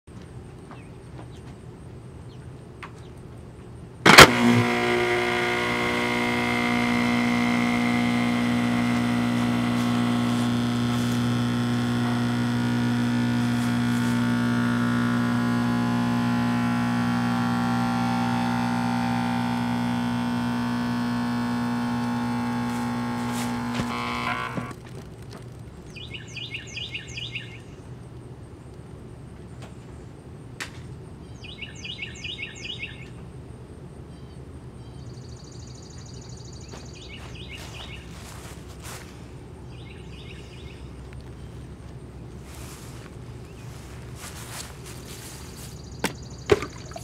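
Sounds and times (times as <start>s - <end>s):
blender switch knock: 4.1s - 24.7s
blades churning a can: 4.1s - 24.8s
blender motor humming: 4.1s - 24.8s, 46.5s - 47.0s.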